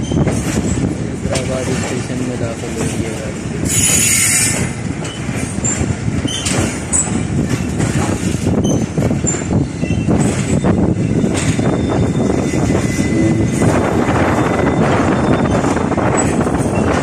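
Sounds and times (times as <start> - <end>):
high wheel squeaks: 0.0 - 17.0
train wheels rumbling on track: 0.0 - 17.0.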